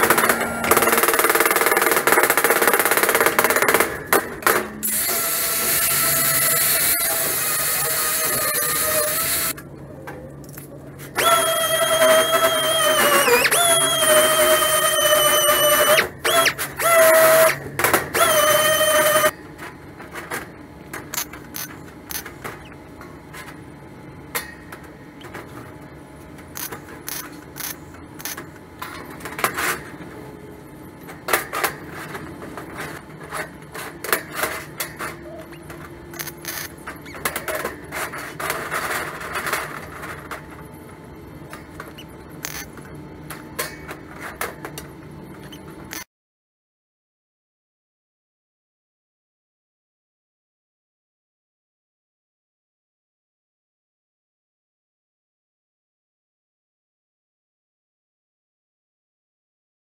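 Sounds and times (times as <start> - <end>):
sheet steel being cut: 0.0 - 9.6, 11.1 - 19.3
disc sander whining on steel: 4.7 - 9.6.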